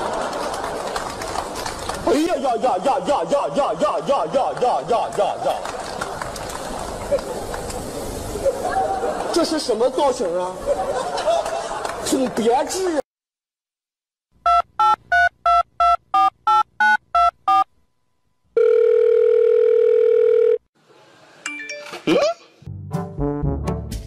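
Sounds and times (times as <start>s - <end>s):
telephone keypad beeps: 14.5s - 17.6s
telephone ringing tone: 18.6s - 20.6s
brass music: 22.7s - 24.0s.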